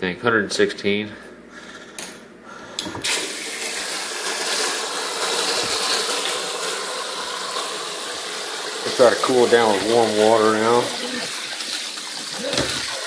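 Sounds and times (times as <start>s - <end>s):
water running into metal sink: 3.0s - 13.0s.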